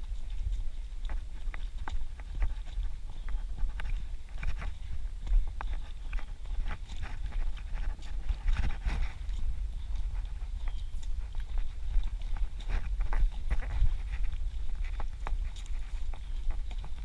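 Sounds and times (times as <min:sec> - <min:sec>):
low microphone rumble: 0:00.0 - 0:17.0
running footsteps on dirt trail: 0:00.0 - 0:17.0.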